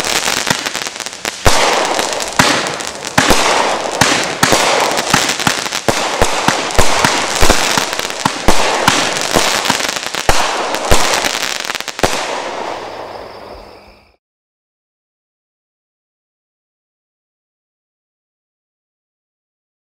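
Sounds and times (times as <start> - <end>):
fireworks shots and bursts: 0.0 - 13.6
fireworks crackle: 0.0 - 13.8.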